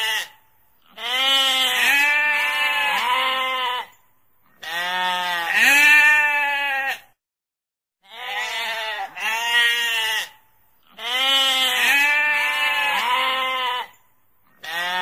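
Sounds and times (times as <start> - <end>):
sheep bleating: 0.0 - 4.0, 4.6 - 7.1, 8.0 - 14.0, 14.6 - 15.0.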